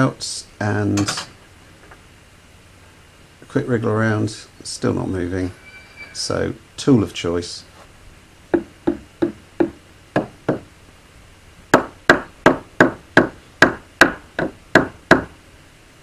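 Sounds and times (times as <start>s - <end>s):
hammer tapping on metal: 8.5s - 10.7s.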